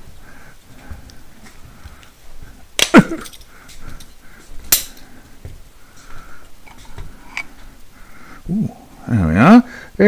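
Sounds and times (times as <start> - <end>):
faint handling noises: 0.7 - 8.0
metal spring clips snapping: 4.7 - 5.0.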